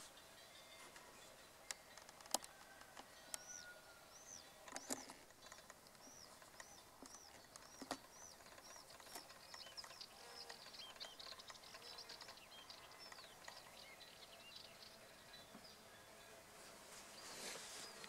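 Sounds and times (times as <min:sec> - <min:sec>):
small birds chirping: 0:00.0 - 0:18.0
faint bee wing buzzing: 0:14.7 - 0:18.0.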